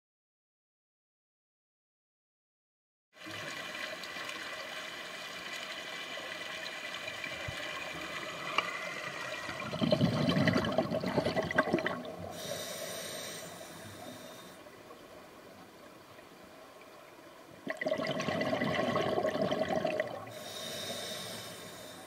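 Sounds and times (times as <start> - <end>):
scuba exhaust bubbling: 9.5 - 14.6, 17.6 - 22.0
underwater hiss: 11.6 - 15.0, 18.4 - 22.0.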